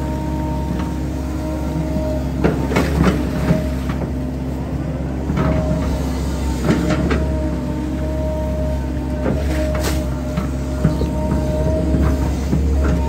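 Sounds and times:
excavator engine drone: 0:00.0 - 0:13.0
hydraulic whine: 0:00.0 - 0:13.0
bucket digging into soil: 0:09.3 - 0:10.2.

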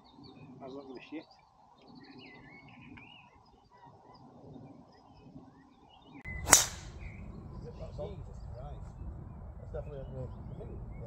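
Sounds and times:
golf club striking ball: 0:06.4 - 0:07.2.

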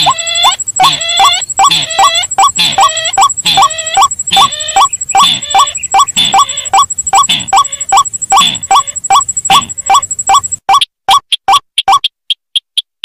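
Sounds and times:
harsh rail bird calls: 0:00.0 - 0:10.0.

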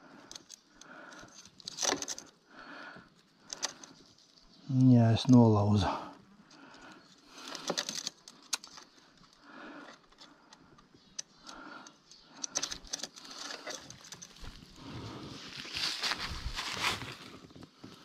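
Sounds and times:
bicycle parts clicking and rattling: 0:00.0 - 0:02.4, 0:03.1 - 0:04.9, 0:06.4 - 0:14.8
soft rustling: 0:13.1 - 0:18.0.

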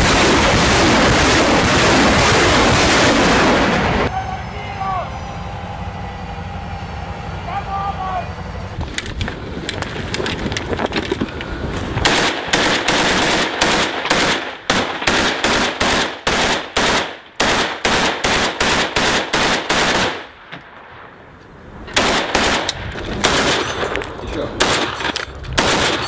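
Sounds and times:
rapid assault rifle fire: 0:00.0 - 0:04.1, 0:12.0 - 0:20.3, 0:22.0 - 0:23.7, 0:25.6 - 0:26.0.

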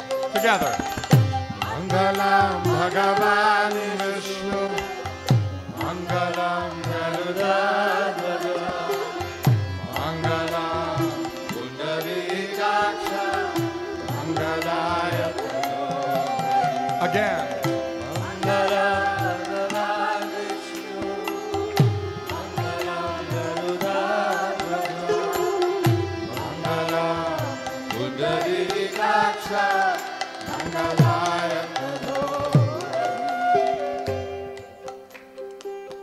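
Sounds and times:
harmonium held tones: 0:00.0 - 0:36.0
voices singing a mantra: 0:01.6 - 0:34.0
bamboo flute: 0:15.3 - 0:19.6, 0:32.6 - 0:36.0.

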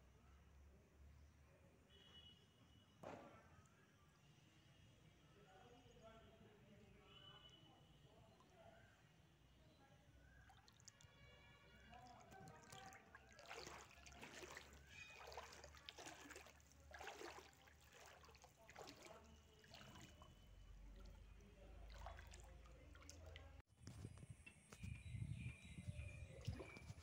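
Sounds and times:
floodwater sloshing and splashing: 0:10.3 - 0:23.6, 0:26.2 - 0:27.0.

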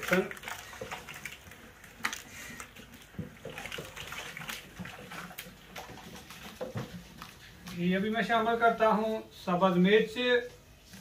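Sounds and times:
thick greens squelching: 0:00.0 - 0:08.8
wooden stirrer scraping a pot: 0:00.0 - 0:09.3.

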